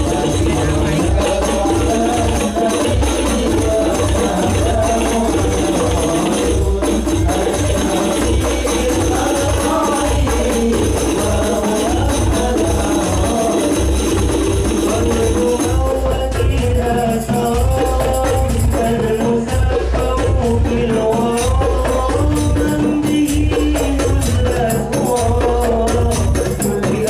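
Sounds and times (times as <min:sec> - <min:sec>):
frame drums: 0:00.0 - 0:27.0
jingling percussion: 0:00.0 - 0:27.0.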